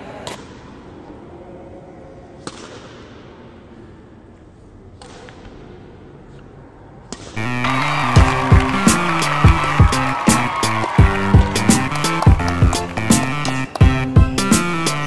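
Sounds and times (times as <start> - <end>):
faint background noise: 0.0 - 7.4.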